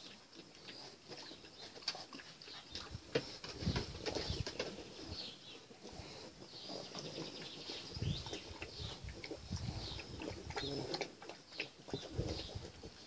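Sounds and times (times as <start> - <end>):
puppies splashing and lapping water: 0.0 - 4.5, 8.0 - 13.0
birds calling: 0.6 - 13.0.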